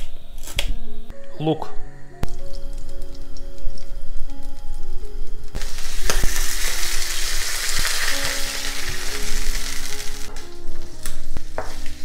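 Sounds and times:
onions sizzling in a frying pan: 5.5s - 12.0s.

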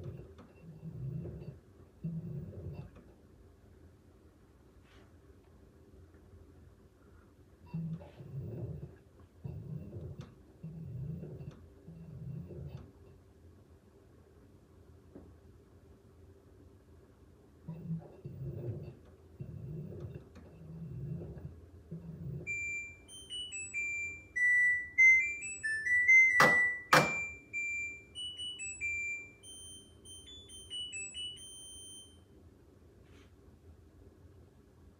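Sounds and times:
washing machine beeping tune: 0.0s - 3.0s, 17.7s - 32.4s.

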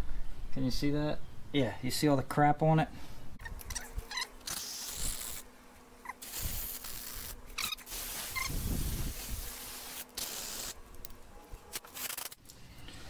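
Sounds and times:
aerosol spray hissing: 4.4s - 5.4s, 6.1s - 10.8s.

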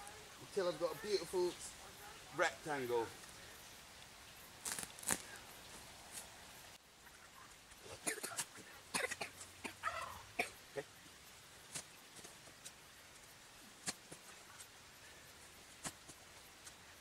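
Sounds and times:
spade crunching into soil: 4.6s - 5.3s.

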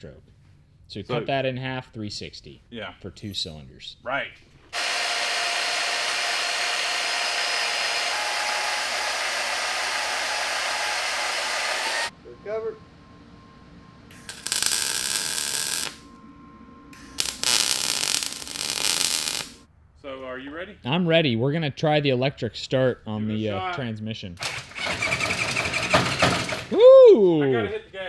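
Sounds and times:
power tools grinding steel: 4.8s - 12.1s, 14.2s - 16.0s, 17.0s - 19.6s
arc welding crackle: 14.1s - 16.1s, 17.0s - 19.7s.

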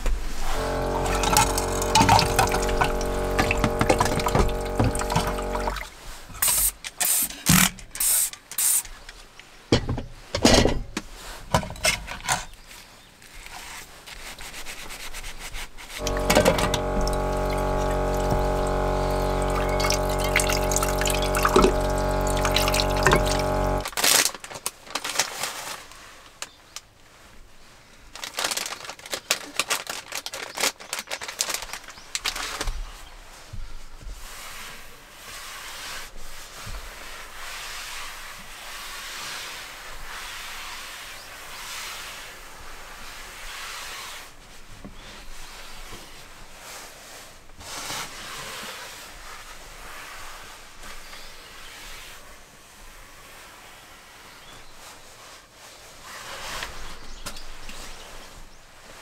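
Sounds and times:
tap running: 0.5s - 5.8s, 16.0s - 23.9s
electric water pump humming: 0.5s - 6.6s, 16.0s - 24.0s.

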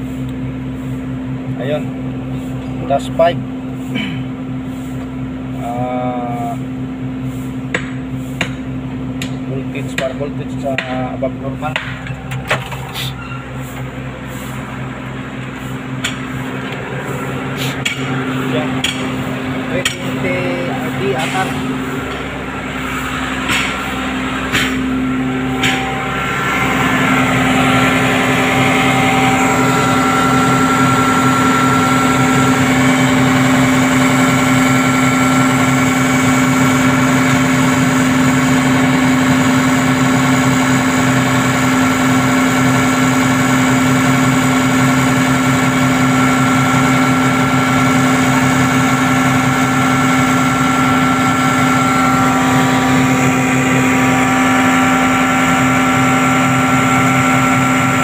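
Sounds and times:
excavator diesel engine running: 0.0s - 58.0s
sharp knocks: 11.7s - 12.8s, 18.8s - 19.2s, 23.4s - 23.9s, 24.5s - 24.9s, 25.6s - 26.0s.

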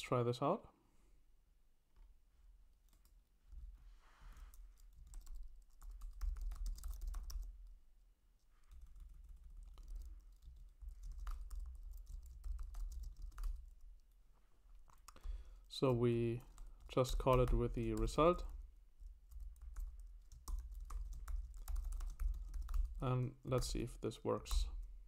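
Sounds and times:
computer keyboard typing: 4.5s - 7.6s, 8.7s - 14.1s, 14.9s - 15.4s, 16.4s - 23.0s.

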